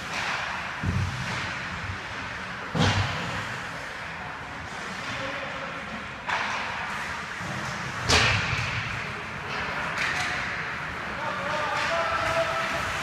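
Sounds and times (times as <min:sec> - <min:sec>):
sharp cracks against rink boards: 0:00.0 - 0:03.8, 0:06.0 - 0:13.0.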